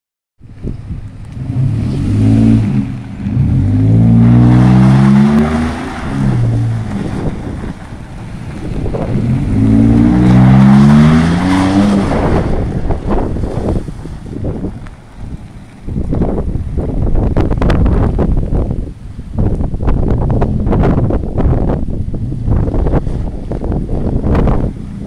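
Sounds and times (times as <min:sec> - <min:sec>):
tyre noise on wet pavement: 0:00.4 - 0:25.0
truck engine revving: 0:01.2 - 0:16.5.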